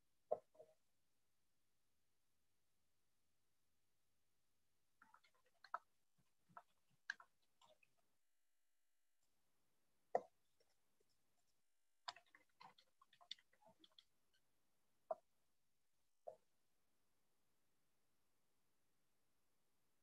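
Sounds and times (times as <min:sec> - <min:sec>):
faint clicks and taps: 0:05.0 - 0:08.1, 0:10.1 - 0:15.4, 0:16.2 - 0:16.5.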